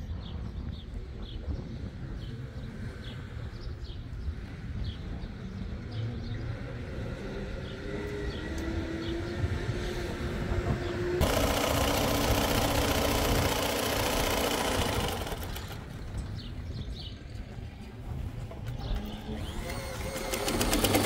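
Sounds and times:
sewing machine stitching: 11.2s - 15.9s, 19.4s - 21.0s.

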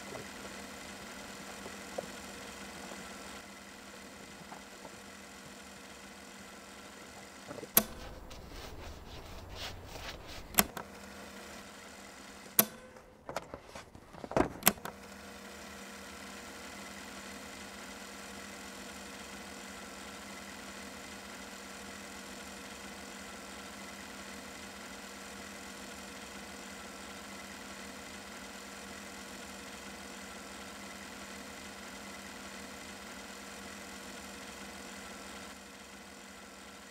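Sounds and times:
steady hum with fixed tones: 0.0s - 16.9s.

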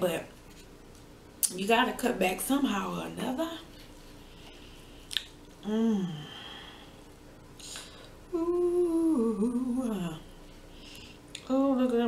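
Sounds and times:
woman humming while eating: 5.6s - 6.6s, 8.3s - 10.3s.

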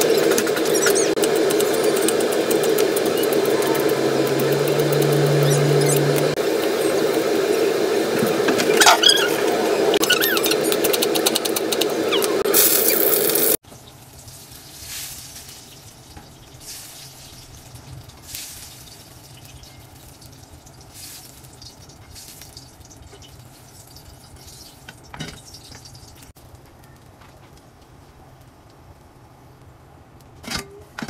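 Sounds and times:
hot oil sizzling in a wok: 12.5s - 26.4s.

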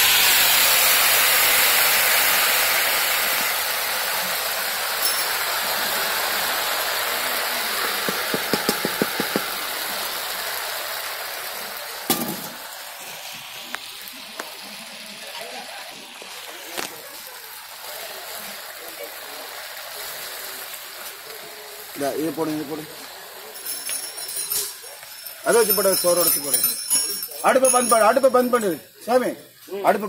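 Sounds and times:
hot liquid hissing in a pot: 0.0s - 30.0s.

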